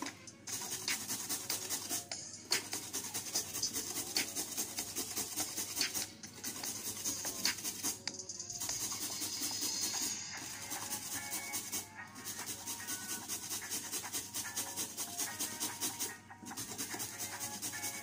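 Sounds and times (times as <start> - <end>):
soft background music: 0.0 - 18.0
carrot grating on metal grater: 0.5 - 8.0, 8.6 - 18.0.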